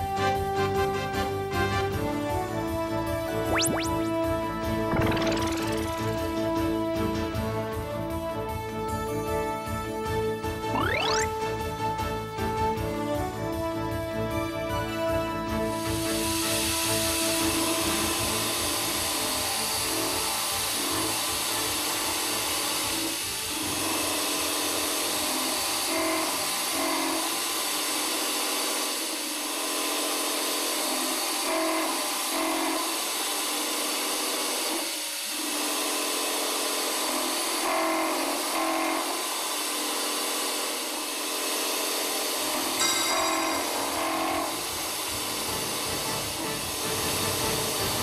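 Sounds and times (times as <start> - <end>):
background music: 0.0 - 22.4, 42.8 - 48.0
end mill cutting steel hiss: 15.7 - 25.5.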